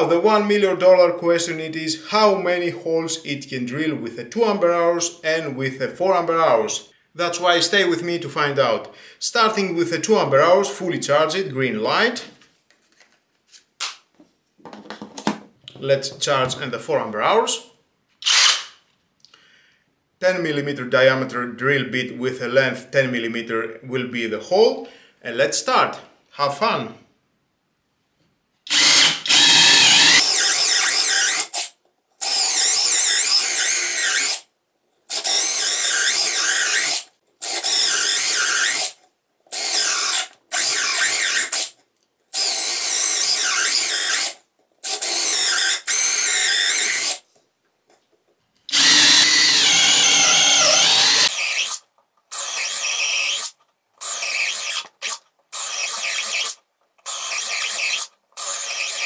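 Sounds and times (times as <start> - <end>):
cordless drill boring holes: 18.2 - 18.8, 28.7 - 34.5, 35.1 - 47.2, 48.7 - 59.0.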